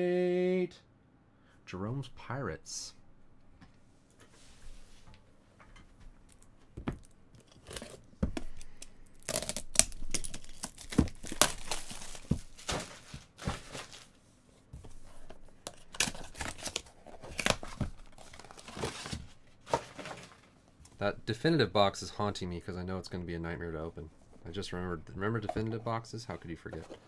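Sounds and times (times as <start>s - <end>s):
plastic wrap crinkling and tearing: 7.0s - 14.2s, 15.7s - 20.4s.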